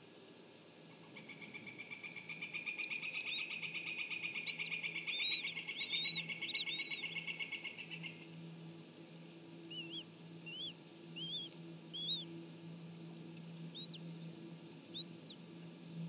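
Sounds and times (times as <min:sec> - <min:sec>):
eaglets peeping: 0:01.2 - 0:08.3, 0:09.6 - 0:12.4, 0:13.4 - 0:15.5.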